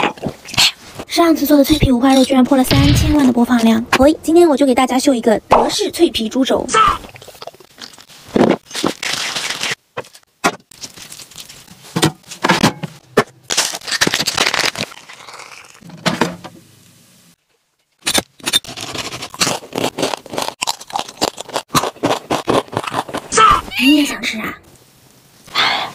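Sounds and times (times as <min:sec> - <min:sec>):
cooking and handling sounds: 0:05.7 - 0:25.5.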